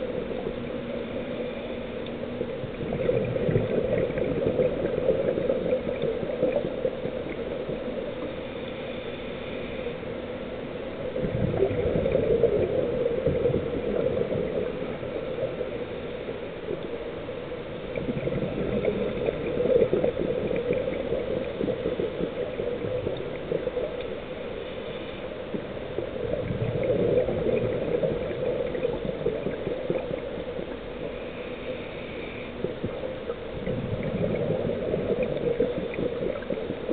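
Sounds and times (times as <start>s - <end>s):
air bubbles gurgling: 2.4s - 8.4s, 11.0s - 24.6s, 25.4s - 31.2s, 32.5s - 36.9s.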